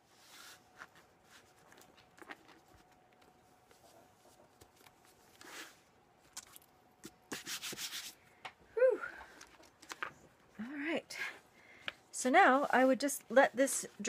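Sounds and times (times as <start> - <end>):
hands rubbing a book: 0.1 - 5.8, 7.0 - 8.2.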